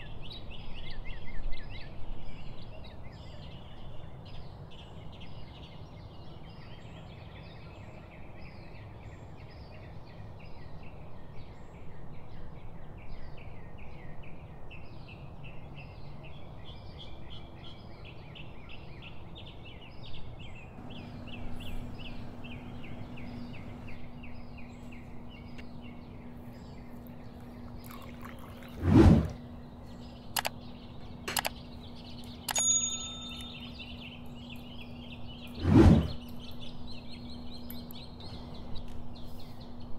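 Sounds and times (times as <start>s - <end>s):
small birds chirping: 0.0s - 39.9s
low steady hum: 20.7s - 39.9s
clicks: 31.3s - 31.6s
short ringing clink: 32.5s - 34.0s.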